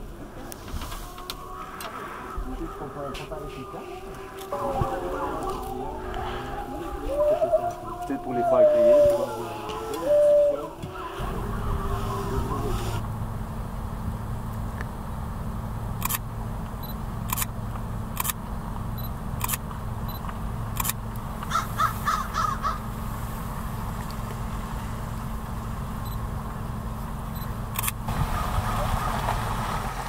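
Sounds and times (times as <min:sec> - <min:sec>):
low engine hum: 0:00.0 - 0:30.0
crow cawing: 0:04.1 - 0:13.0, 0:21.5 - 0:22.9
sharp clicks: 0:16.0 - 0:16.2, 0:17.2 - 0:17.5, 0:18.1 - 0:18.4, 0:19.4 - 0:21.2, 0:27.8 - 0:28.0.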